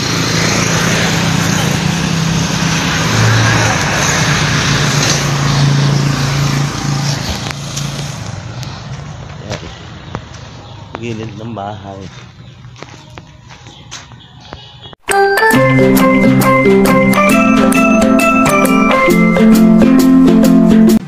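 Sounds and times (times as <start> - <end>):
vehicle engine hum: 0.0 - 13.3
road noise: 0.0 - 15.0, 15.6 - 21.0.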